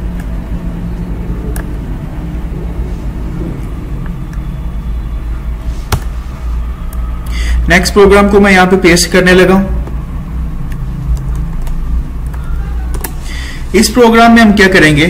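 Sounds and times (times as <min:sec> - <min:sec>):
low background rumble: 0:00.0 - 0:14.1
keyboard and mouse clicks: 0:01.5 - 0:01.8, 0:10.6 - 0:13.2.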